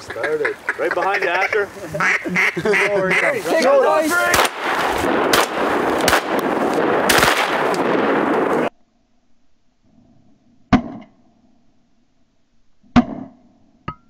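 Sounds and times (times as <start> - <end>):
shotgun blast with echo: 4.3 - 8.5
shotgun shots: 4.3 - 8.7.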